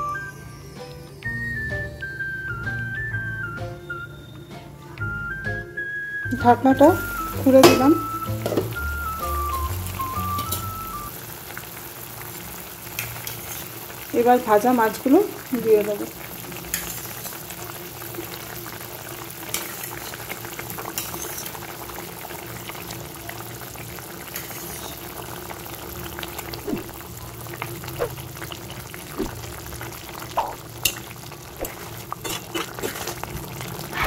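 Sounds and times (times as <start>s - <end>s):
curry gravy bubbling: 6.8s - 34.0s.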